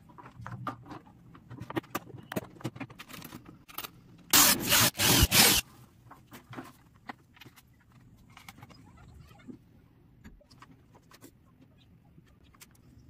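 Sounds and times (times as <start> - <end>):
loud rasping scrapes: 4.4 - 5.6.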